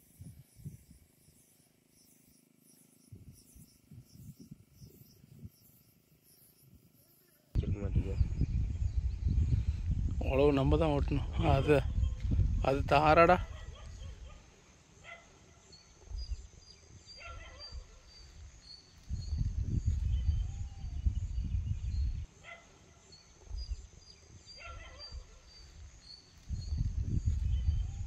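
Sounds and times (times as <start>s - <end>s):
low rumbling noise: 7.6s - 13.8s.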